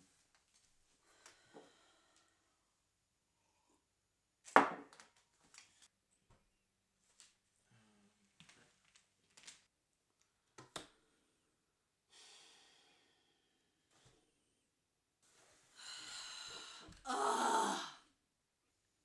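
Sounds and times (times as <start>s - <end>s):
woman sighing: 15.8s - 18.0s.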